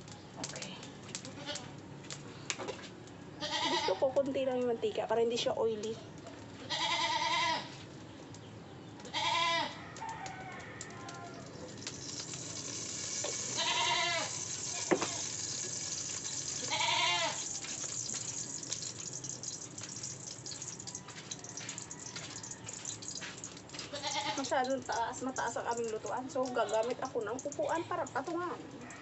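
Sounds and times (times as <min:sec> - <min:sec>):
steady hiss with crackles: 0:00.0 - 0:28.8
goat bleating: 0:01.3 - 0:01.7, 0:03.4 - 0:04.0, 0:06.6 - 0:07.7, 0:09.1 - 0:09.8, 0:13.4 - 0:15.3, 0:16.5 - 0:17.5, 0:23.9 - 0:24.5.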